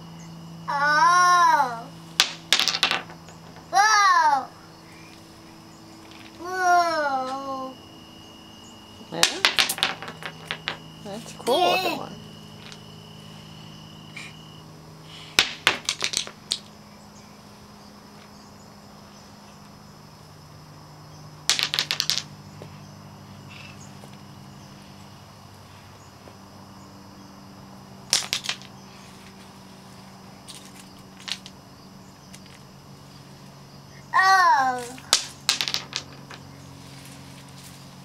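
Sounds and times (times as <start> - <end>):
steady low hum: 0.0 - 21.5
pebbles clacking together: 2.2 - 3.7, 9.2 - 10.8, 15.4 - 16.7, 21.5 - 22.3, 28.1 - 28.7, 30.5 - 31.6, 34.8 - 36.4.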